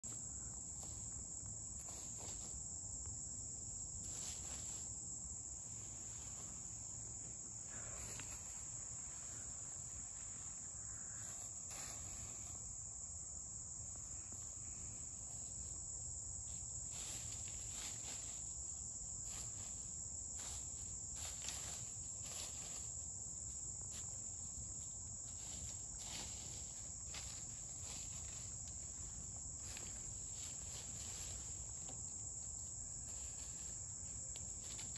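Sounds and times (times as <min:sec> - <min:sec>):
high-pitched insect chorus: 0:00.0 - 0:34.9
hens scratching in dry leaves: 0:04.0 - 0:05.0, 0:16.8 - 0:18.6, 0:19.2 - 0:23.0, 0:25.2 - 0:31.9, 0:33.0 - 0:33.9.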